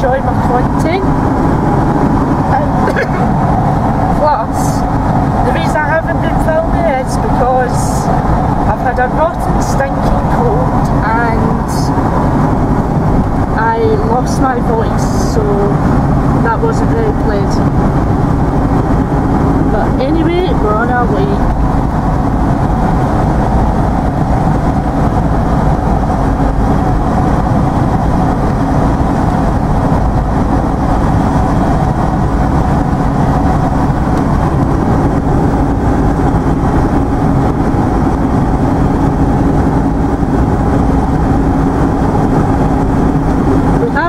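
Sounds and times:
low hum: 0.0 - 44.0
tyre roar on road: 0.0 - 44.0
vehicle engine drone: 0.0 - 44.0.

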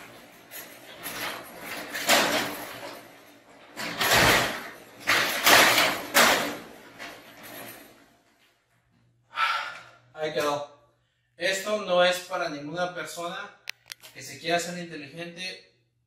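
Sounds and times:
garage door panels rattling and banging: 0.0 - 8.5.

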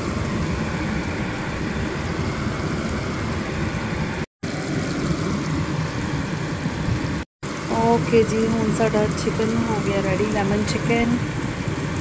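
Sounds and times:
sauce bubbling and sizzling: 0.0 - 12.0.

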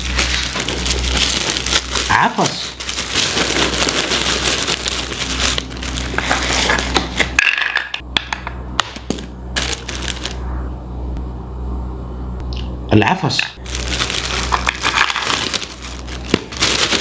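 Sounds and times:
plastic crinkling: 0.0 - 7.4, 9.6 - 10.4, 13.6 - 17.0.

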